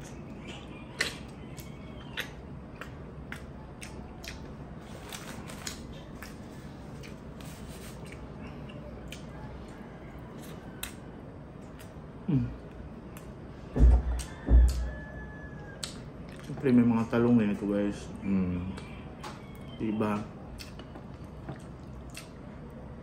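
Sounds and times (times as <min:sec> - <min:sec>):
mouth chewing and sucking: 0:00.0 - 0:09.4
person humming: 0:12.3 - 0:12.7.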